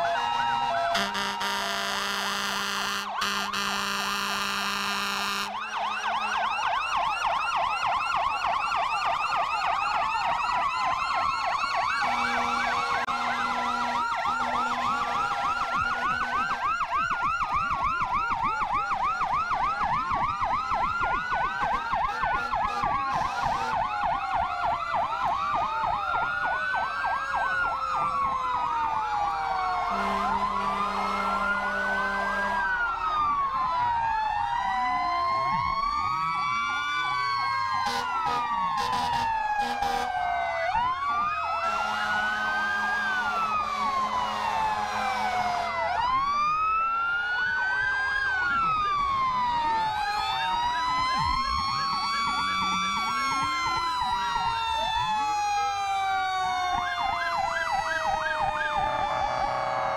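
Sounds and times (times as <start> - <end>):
fire engine sirens: 0.0 - 59.9
truck horn blaring: 0.9 - 5.6, 12.0 - 16.6, 22.1 - 23.8, 29.9 - 32.7, 37.8 - 40.1, 41.6 - 45.7.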